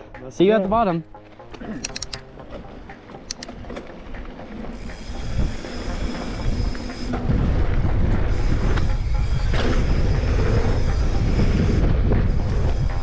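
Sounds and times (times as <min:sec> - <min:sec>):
sharp clicks: 0:01.8 - 0:02.3, 0:03.2 - 0:03.6
wind buffeting: 0:03.6 - 0:13.0.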